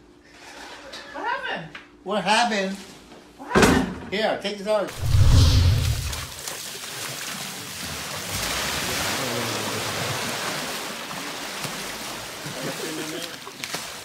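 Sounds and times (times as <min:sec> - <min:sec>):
water splashing in plastic tub: 0:05.8 - 0:14.0.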